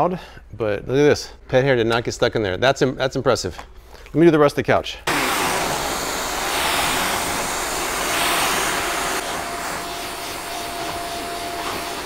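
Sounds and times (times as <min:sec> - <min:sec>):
vacuum cleaner running: 0:05.1 - 0:12.0.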